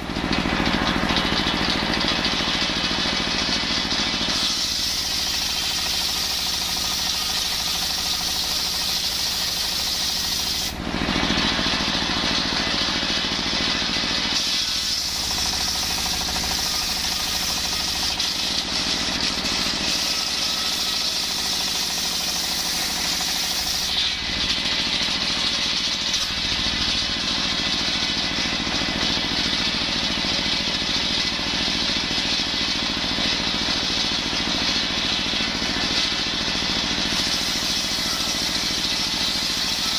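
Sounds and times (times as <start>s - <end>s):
diesel engine running: 0.0s - 39.9s
circular saw cutting wood: 3.9s - 29.6s, 35.8s - 39.9s.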